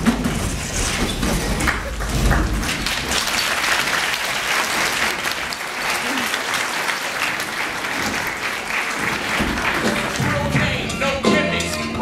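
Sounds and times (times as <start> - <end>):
audience applauding: 1.6 - 10.9.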